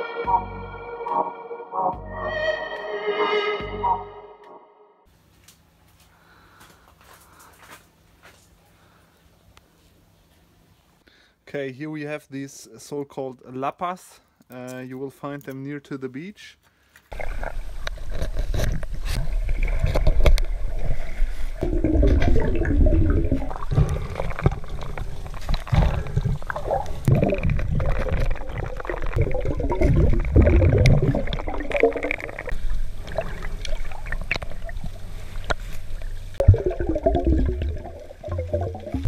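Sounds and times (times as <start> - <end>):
underwater surging and gurgling: 17.1 - 39.0
deep underwater rumble: 17.2 - 39.0.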